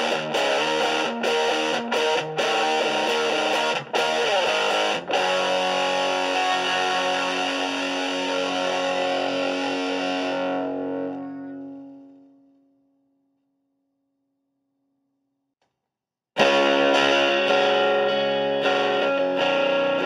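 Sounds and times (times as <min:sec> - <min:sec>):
electric guitar chords: 0:00.0 - 0:12.4, 0:16.4 - 0:20.0.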